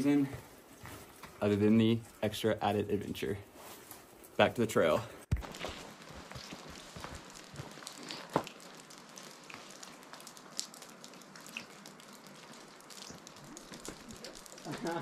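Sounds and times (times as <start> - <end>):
footsteps on dirt and rock: 0.1 - 1.6, 5.3 - 8.8.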